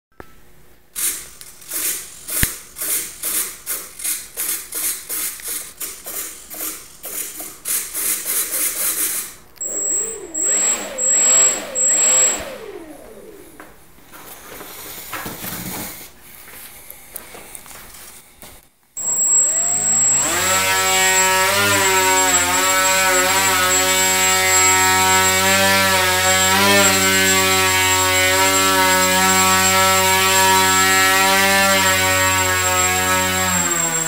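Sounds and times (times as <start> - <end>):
model airplane motors buzzing: 9.6 - 13.6, 19.0 - 34.0.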